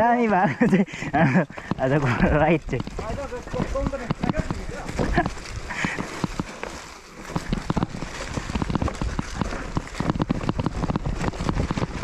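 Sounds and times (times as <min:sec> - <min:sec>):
bike rattling on rough trail: 0:00.0 - 0:12.0
wind on microphone: 0:07.2 - 0:12.0.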